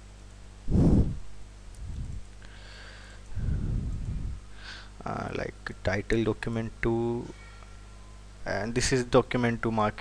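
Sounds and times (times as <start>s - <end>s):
breath blowing on microphone: 0.7s - 2.2s, 3.3s - 4.7s.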